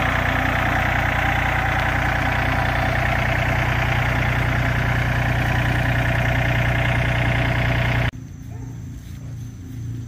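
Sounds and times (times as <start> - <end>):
tractor diesel engine idling: 0.0 - 8.1.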